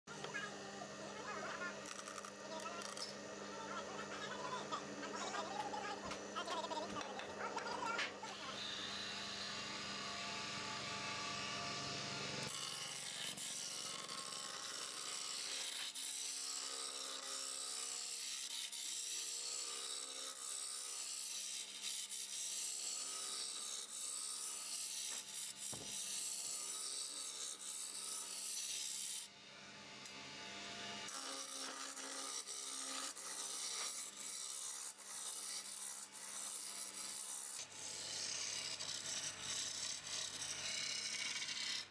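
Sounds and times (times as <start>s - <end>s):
lathe tool scraping wood: 1.2s - 9.6s, 31.1s - 41.9s.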